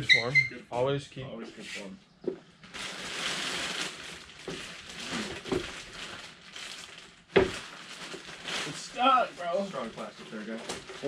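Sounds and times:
plastic bag rustling: 0:02.4 - 0:11.0.

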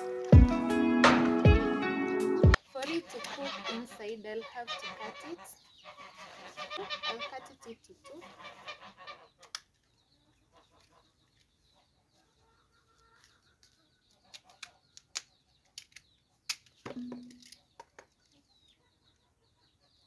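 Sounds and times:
chickens clucking: 0:02.4 - 0:14.9.

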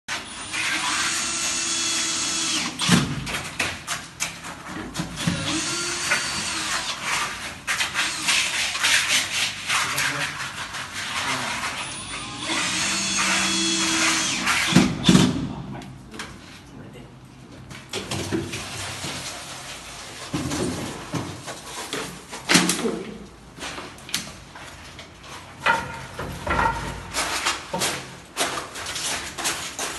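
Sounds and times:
knocks and scrapes of wet concrete: 0:06.2 - 0:12.2, 0:17.8 - 0:24.0, 0:24.8 - 0:29.9
power tool motor running: 0:12.1 - 0:14.8.

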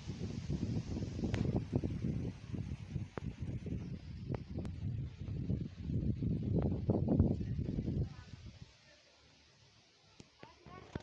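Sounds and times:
wind buffeting microphone: 0:00.0 - 0:08.7.

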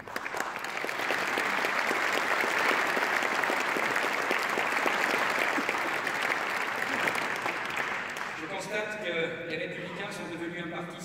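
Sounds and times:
large audience applauding: 0:00.0 - 0:08.6.

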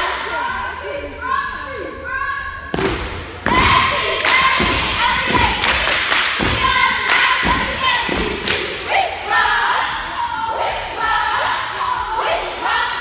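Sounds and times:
girls chanting in unison: 0:00.0 - 0:02.8, 0:03.4 - 0:13.0
hand claps: 0:05.6 - 0:07.4, 0:08.4 - 0:08.8.

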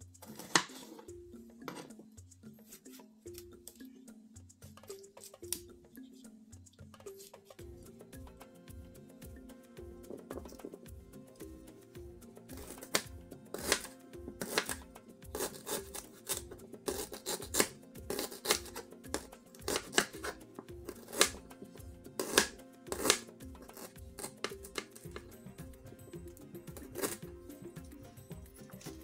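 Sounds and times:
background music: 0:00.0 - 0:29.0
knife chopping on plastic board: 0:00.2 - 0:01.0, 0:12.5 - 0:25.7, 0:26.6 - 0:27.3.

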